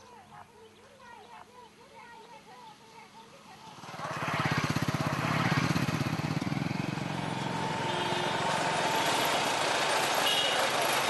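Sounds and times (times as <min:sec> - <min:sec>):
small motorcycle engine puttering: 0:03.7 - 0:11.0.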